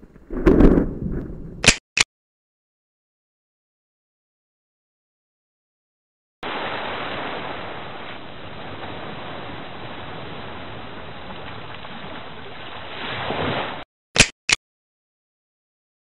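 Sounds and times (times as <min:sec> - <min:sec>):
small waves washing on shore: 0:06.4 - 0:13.8.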